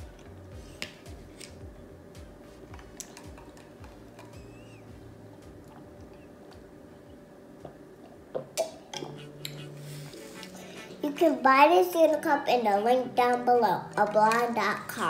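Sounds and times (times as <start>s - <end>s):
faint steady hum: 0.0s - 15.0s
child chewing and sipping: 2.7s - 6.3s.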